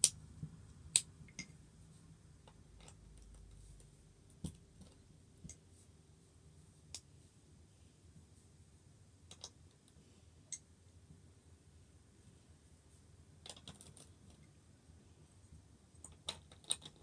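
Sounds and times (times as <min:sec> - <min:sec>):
plastic bricks clicking: 0:13.4 - 0:14.1, 0:16.0 - 0:17.0.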